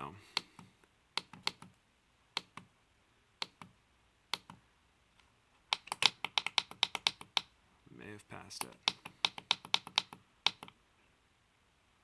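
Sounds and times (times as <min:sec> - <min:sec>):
keypad buttons clicking: 0:05.7 - 0:07.5, 0:08.6 - 0:10.8.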